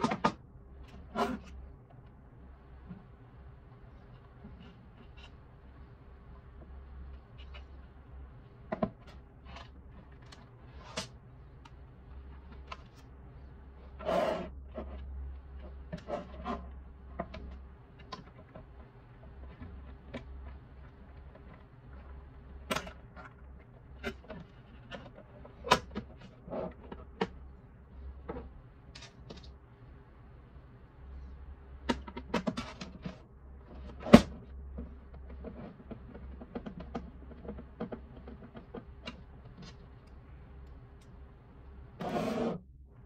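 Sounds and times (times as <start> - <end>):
faint low hum: 0.0 - 43.0
plastic scrape: 13.8 - 16.7, 42.0 - 42.6.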